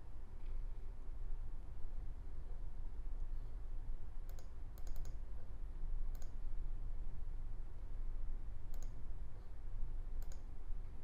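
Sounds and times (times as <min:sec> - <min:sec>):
steady low hum: 0:00.0 - 0:11.0
computer mouse clicking: 0:04.3 - 0:05.2, 0:06.1 - 0:06.4, 0:08.7 - 0:09.0, 0:10.2 - 0:10.5.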